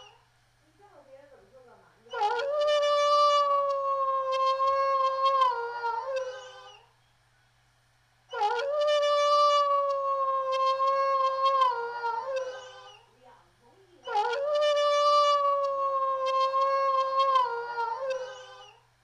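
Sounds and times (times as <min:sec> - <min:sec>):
wolf howling: 0:02.1 - 0:06.9, 0:08.3 - 0:13.1, 0:14.0 - 0:18.8.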